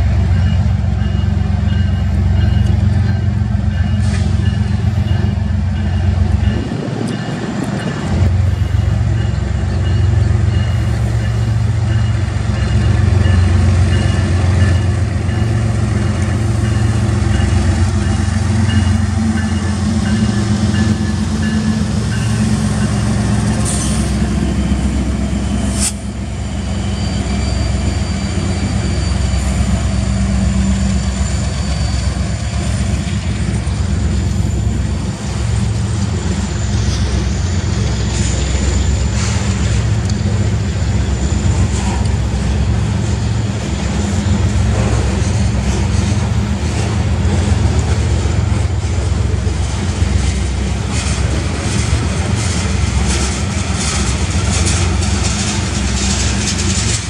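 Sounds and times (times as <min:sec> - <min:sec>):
diesel locomotives passing: 0:00.0 - 0:57.0
train wheels rumbling on rail: 0:00.0 - 0:57.0
high wheel squeal: 0:08.5 - 0:46.2.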